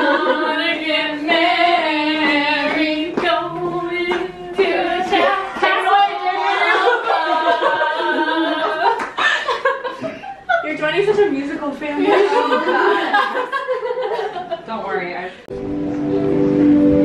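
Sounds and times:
women singing unaccompanied: 0:00.0 - 0:09.2.

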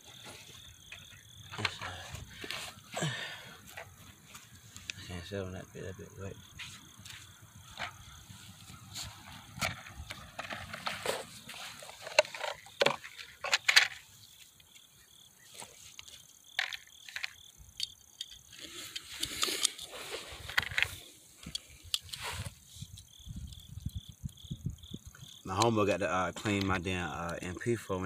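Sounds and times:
insects chirping: 0:00.0 - 0:28.0
ammunition cartridges clicking: 0:12.0 - 0:14.0, 0:16.5 - 0:22.2.

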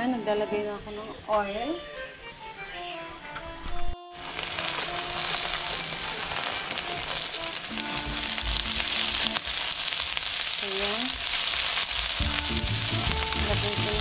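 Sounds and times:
onion and garlic sizzling in oil: 0:04.1 - 0:14.0.

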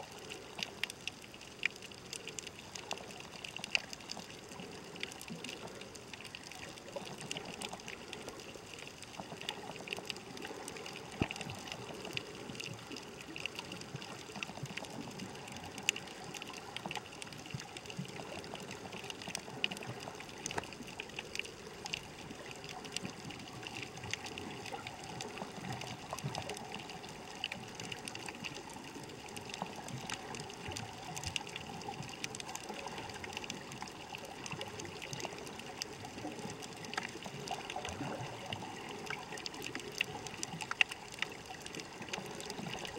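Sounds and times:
faint underwater clicks and crackles: 0:00.0 - 0:42.9
underwater water wash: 0:00.0 - 0:42.9.

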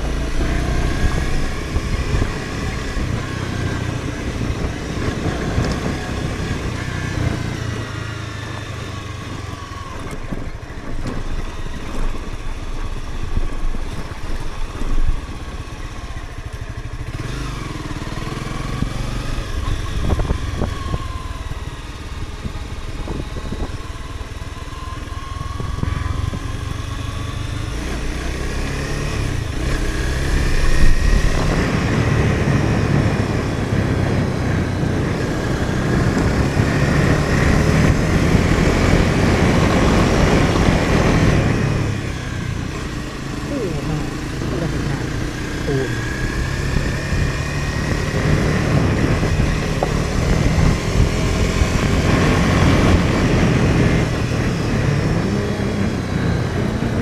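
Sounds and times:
road and tyre noise: 0:00.0 - 0:57.0
car engine revving: 0:25.6 - 0:57.0.

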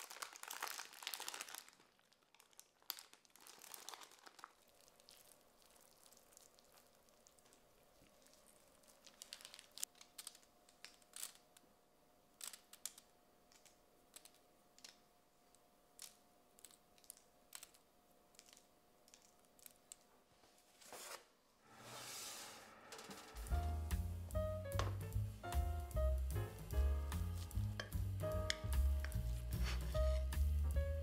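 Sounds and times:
parchment paper rustling: 0:02.4 - 0:11.5, 0:18.4 - 0:22.5, 0:29.0 - 0:30.3.

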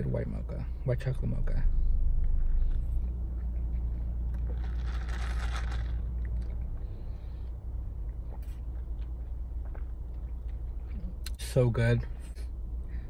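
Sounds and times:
low rumble in a car cabin: 0:00.0 - 0:13.0
slurping through a straw: 0:04.5 - 0:06.0.

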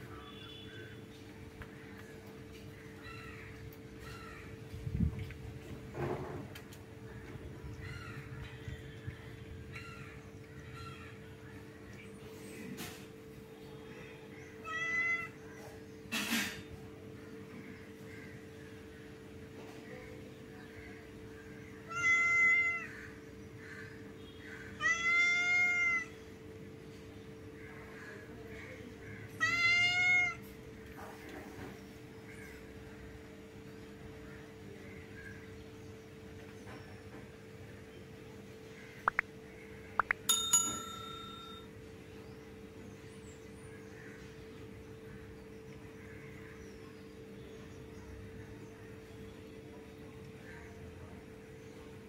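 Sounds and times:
cat meowing: 0:14.6 - 0:15.4, 0:21.9 - 0:22.9, 0:24.8 - 0:26.1, 0:29.4 - 0:30.4
small metal bell ringing: 0:40.2 - 0:41.7.

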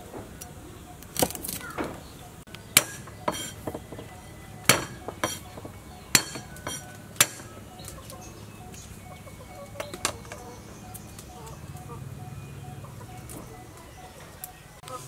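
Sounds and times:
knife chopping on wooden board: 0:02.8 - 0:07.6.

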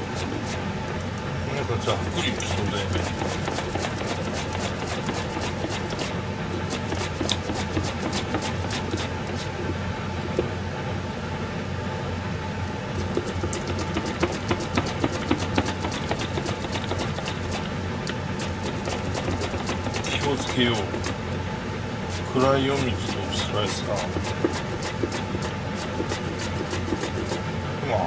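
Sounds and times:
steady low hum: 0:00.0 - 0:28.0
vegetable slicer scraping clicks: 0:02.1 - 0:09.5, 0:13.0 - 0:21.2.

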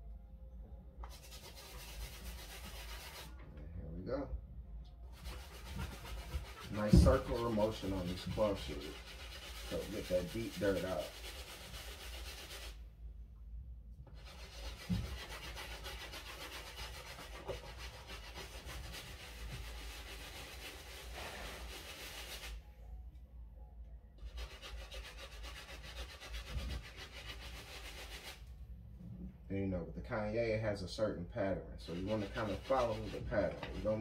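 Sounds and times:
brush scrubbing a shoe: 0:01.1 - 0:03.3, 0:05.2 - 0:12.8, 0:14.2 - 0:22.6, 0:24.3 - 0:28.4, 0:31.8 - 0:34.0.

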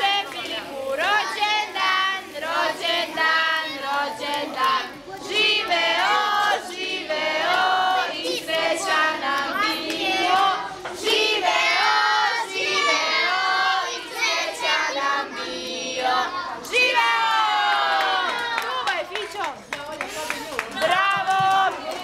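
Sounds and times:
children singing in chorus: 0:00.0 - 0:18.4.

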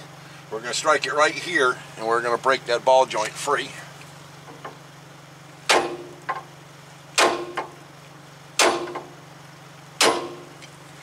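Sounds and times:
hammer striking steel: 0:05.7 - 0:06.1, 0:07.2 - 0:07.7, 0:08.6 - 0:09.0, 0:10.0 - 0:10.5.

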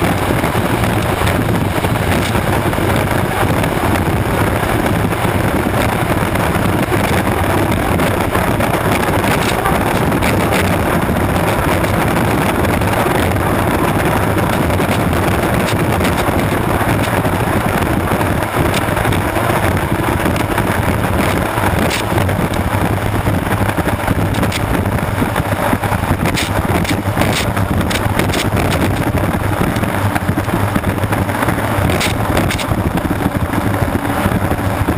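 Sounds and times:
turbine engine roaring: 0:00.0 - 0:34.9
wind buffeting microphone: 0:00.0 - 0:34.9.

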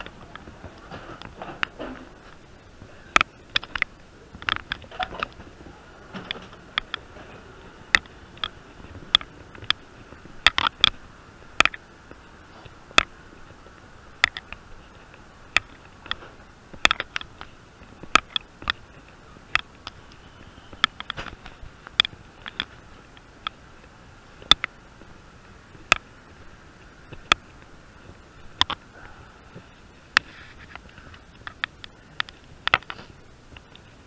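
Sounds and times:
faint steady hum: 0:00.0 - 0:34.0
sharp clicks and taps: 0:03.1 - 0:07.2, 0:07.9 - 0:26.4, 0:27.1 - 0:28.8, 0:29.6 - 0:34.0.

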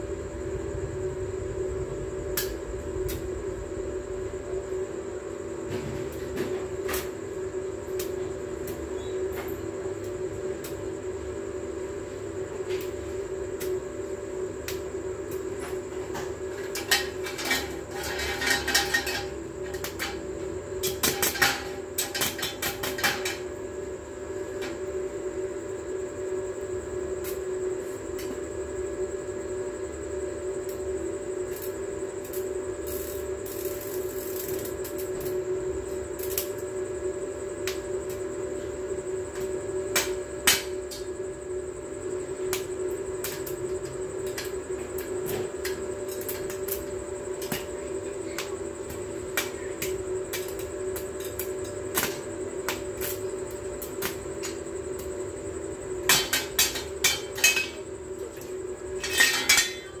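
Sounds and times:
arc welding buzz and crackle: 0:00.0 - 1:00.0
sharp welding pops: 0:02.3 - 0:03.3, 0:16.5 - 0:20.2, 0:20.8 - 0:23.4, 0:31.4 - 0:35.4, 0:36.0 - 0:36.7, 0:39.3 - 0:41.1, 0:42.5 - 0:55.2, 0:56.0 - 0:57.8.

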